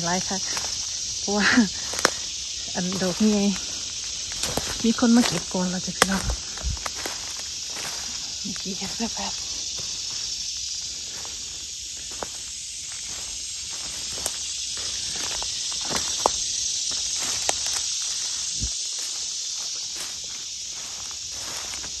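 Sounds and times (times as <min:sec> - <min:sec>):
footsteps on dry leaves: 0:00.0 - 0:22.0
insects droning: 0:00.0 - 0:22.0
twigs snapping: 0:01.8 - 0:02.3, 0:02.9 - 0:09.0, 0:13.8 - 0:19.2.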